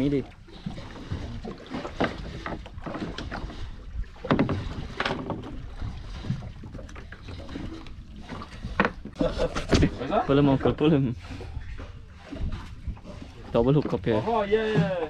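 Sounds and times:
low rumble of wind and water: 0:00.0 - 0:15.0
knocks and clatter on deck: 0:04.2 - 0:05.6.

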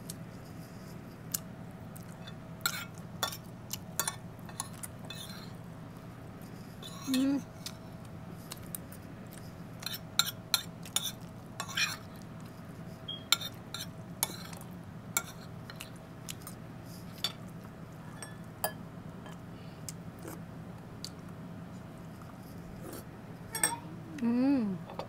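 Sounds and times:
cutlery scraping on a plate: 0:02.2 - 0:03.4, 0:04.0 - 0:05.5, 0:06.8 - 0:07.2, 0:09.8 - 0:12.1, 0:13.3 - 0:14.6.

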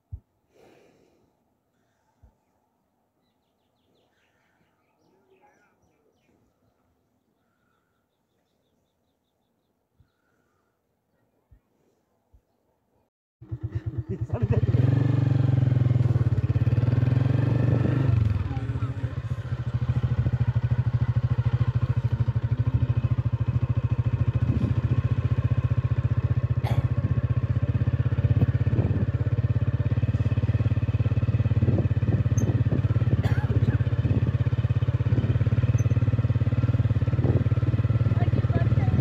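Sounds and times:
small motorcycle engine running: 0:13.4 - 0:39.0.

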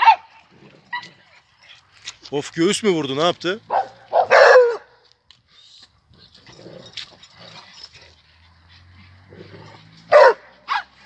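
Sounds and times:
dogs playing: 0:00.0 - 0:02.3, 0:03.7 - 0:11.0
dog yelping: 0:03.7 - 0:04.9, 0:10.1 - 0:11.0.

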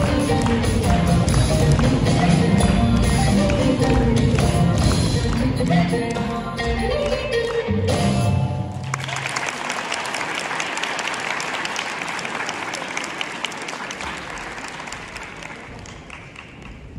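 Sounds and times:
dance music: 0:00.0 - 0:08.8
audience applauding: 0:08.7 - 0:16.9.

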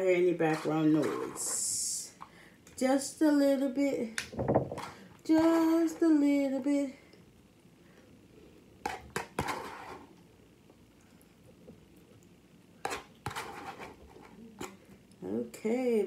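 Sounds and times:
metal spoon scraping plastic container: 0:12.8 - 0:14.4.

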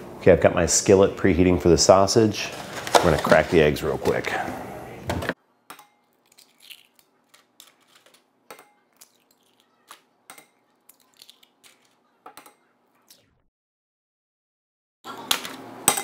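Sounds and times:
eggs cracking into a glass bowl: 0:05.7 - 0:12.6.

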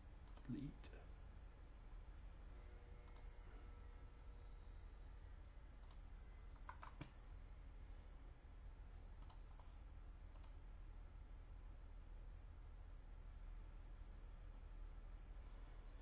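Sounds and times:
low steady hum: 0:00.0 - 0:16.0
computer mouse clicks: 0:00.2 - 0:00.6, 0:03.0 - 0:03.4, 0:05.8 - 0:07.2, 0:09.2 - 0:10.7.

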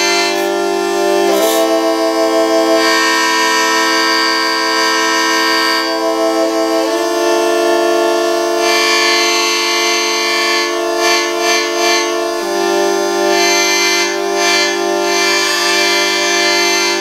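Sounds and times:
hurdy-gurdy notes over drone: 0:00.0 - 0:17.0.

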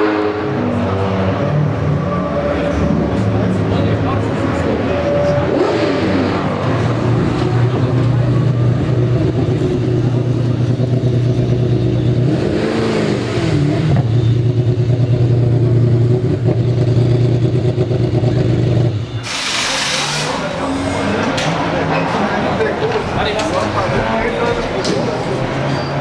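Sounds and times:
race car engine idling: 0:01.6 - 0:12.4, 0:13.4 - 0:19.2
short burst of hiss: 0:19.2 - 0:20.4.

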